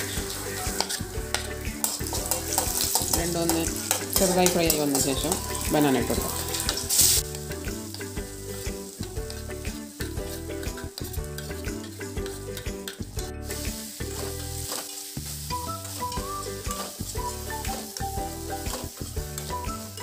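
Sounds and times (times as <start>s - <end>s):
metal spoon scraping pan: 0.0s - 8.1s, 9.0s - 15.0s
instrumental background music: 0.0s - 20.0s
light sizzle: 0.0s - 20.0s.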